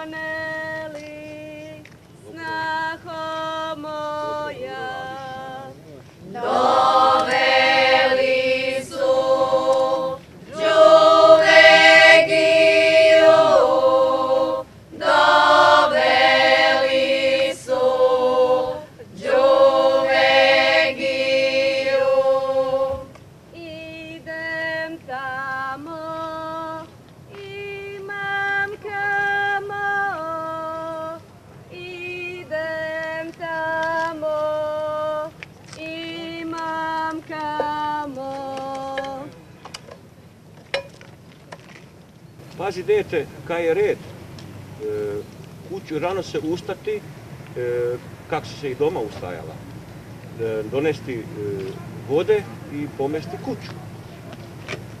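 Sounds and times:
women singing in a group: 0:00.0 - 0:39.4
lone voice singing: 0:00.0 - 0:39.5.

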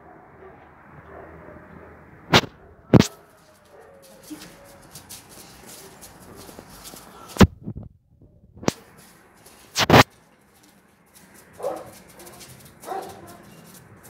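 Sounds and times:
puppy barking: 0:00.0 - 0:07.4, 0:11.6 - 0:13.8.

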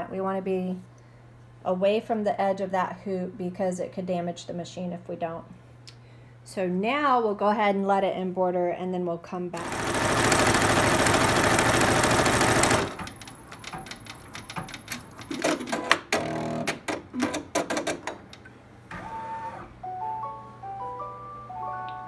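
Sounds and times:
embroidery machine stitching: 0:09.6 - 0:18.2
clicks and knocks: 0:12.9 - 0:18.5.

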